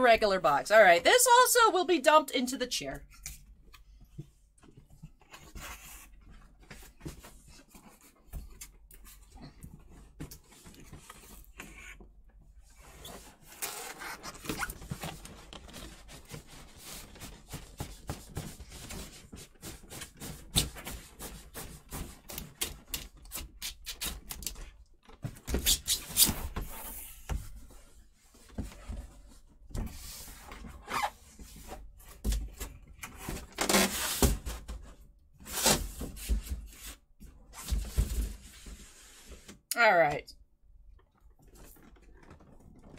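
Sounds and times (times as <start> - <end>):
cardboard rustling and knocks: 14.4 - 22.6.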